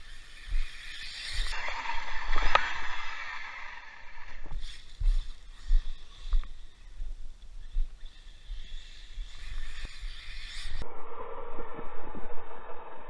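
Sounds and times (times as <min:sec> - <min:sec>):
rc truck on gravel: 0:00.0 - 0:06.9, 0:07.6 - 0:10.8.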